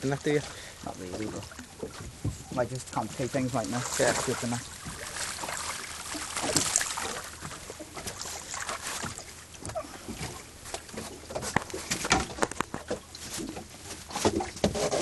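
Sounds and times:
water splashing against boat: 0.0s - 15.0s
small knocks and clicks: 9.6s - 13.1s.

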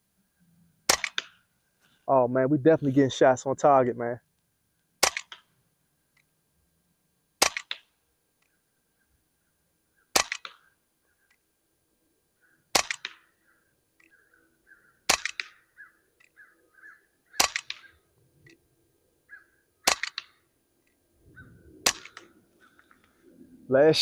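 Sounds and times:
air pistol shots: 0.9s - 1.4s, 5.0s - 5.5s, 7.4s - 7.9s, 10.1s - 10.6s, 12.7s - 13.2s, 15.1s - 15.6s, 17.4s - 17.9s, 19.8s - 20.4s, 21.8s - 22.3s.

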